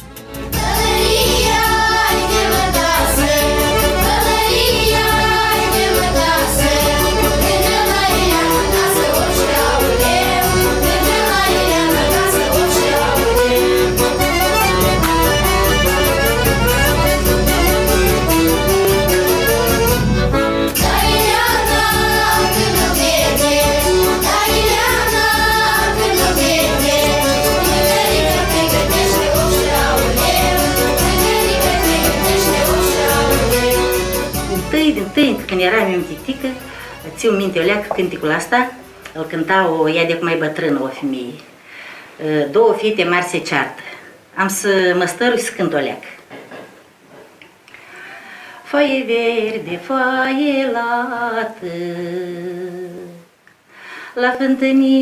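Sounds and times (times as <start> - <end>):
women and girls singing in unison: 0.6 - 14.3, 20.8 - 34.2, 48.7 - 53.2.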